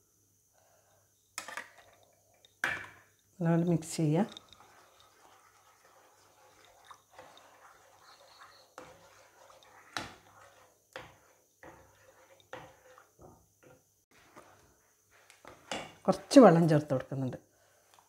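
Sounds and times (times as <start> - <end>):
spoon knocking and scraping pan: 4.2 - 14.6, 15.4 - 16.3.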